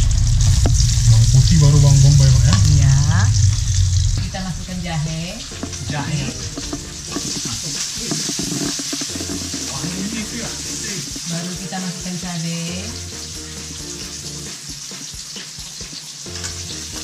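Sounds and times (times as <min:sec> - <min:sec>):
metal spatula stir-frying in wok: 0:00.0 - 0:17.0
onion and garlic sizzling in oil: 0:00.0 - 0:17.0
person speaking: 0:01.0 - 0:03.4, 0:04.2 - 0:08.2.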